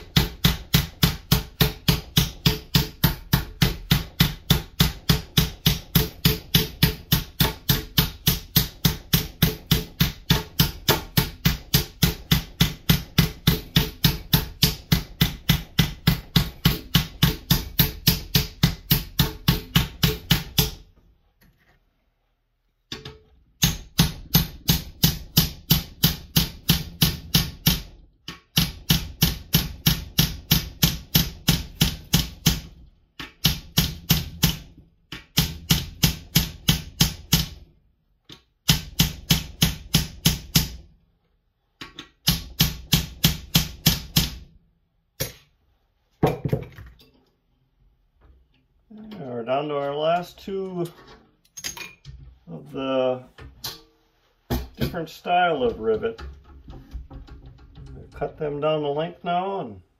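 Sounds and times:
hammer striking metal rivets: 0.0 - 20.9, 22.9 - 37.6, 51.4 - 52.2, 53.5 - 54.9.

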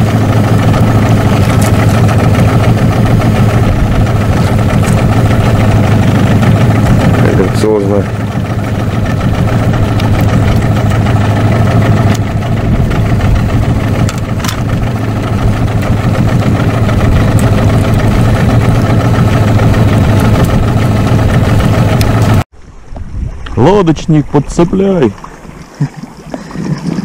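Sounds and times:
outboard motor humming: 0.0 - 27.0.

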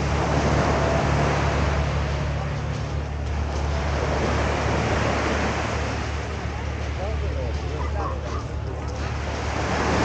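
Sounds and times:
engine humming steadily: 0.0 - 10.0
outdoor noise: 0.0 - 10.0.

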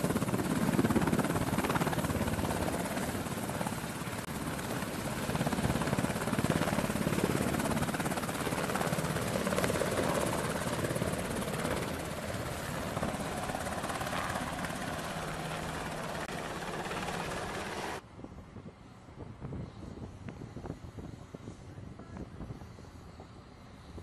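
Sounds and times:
helicopter rotor chop: 0.0 - 18.0.

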